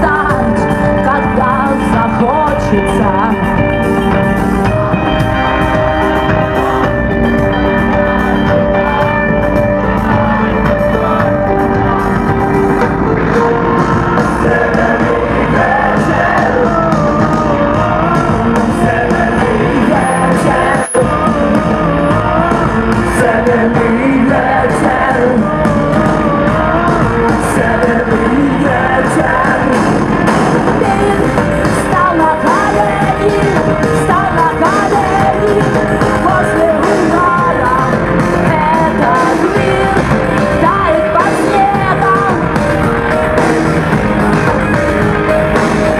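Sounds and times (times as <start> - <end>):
woman singing: 0.0 - 3.7, 30.6 - 42.6
live rock band: 0.0 - 45.9.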